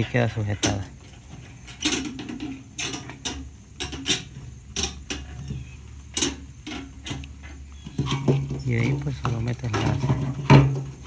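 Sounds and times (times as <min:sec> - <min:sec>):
parts clicking and knocking: 0:00.0 - 0:11.0.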